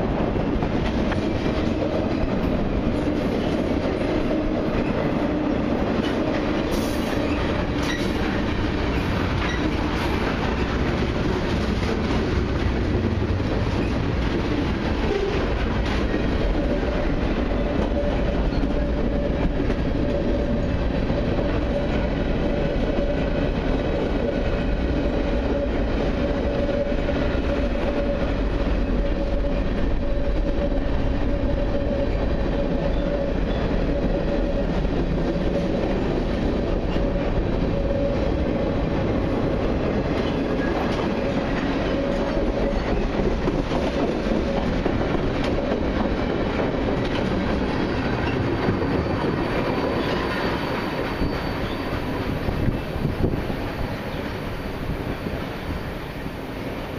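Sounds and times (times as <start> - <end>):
train wheels rumbling on rail: 0.0 - 56.9.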